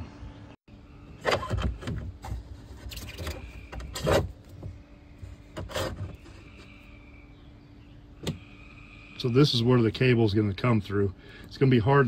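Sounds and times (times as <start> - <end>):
cable rubbing and scraping: 5.6 - 6.6.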